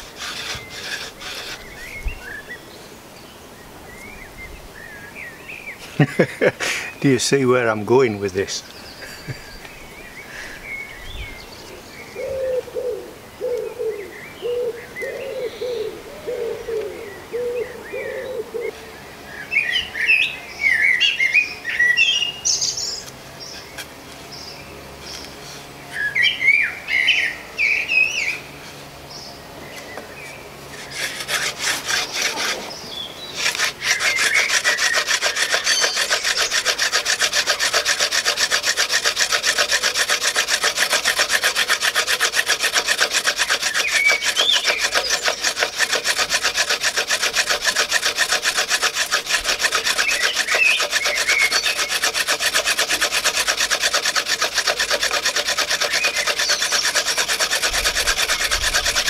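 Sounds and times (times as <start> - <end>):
wooden hand drill rasping: 0.0 - 2.4, 30.7 - 59.0
birds chirping: 0.0 - 59.0.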